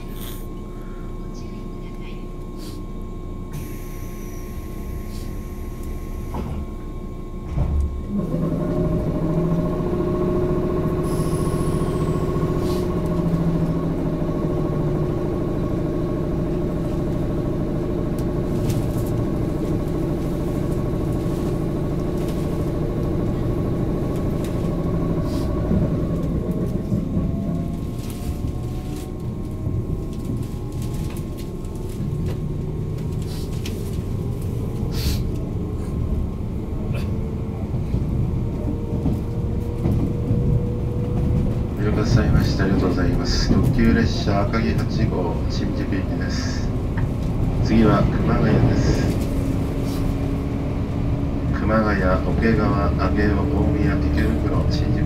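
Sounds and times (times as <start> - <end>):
hum from under train floor: 0.0 - 55.0
traction motor whine rising: 3.4 - 41.8
train clunk: 5.2 - 10.0, 36.8 - 50.4.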